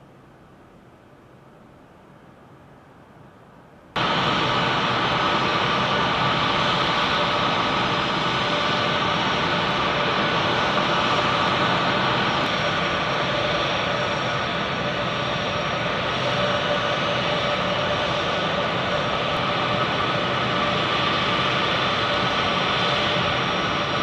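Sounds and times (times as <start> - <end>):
jet engines whining: 4.0 - 24.0.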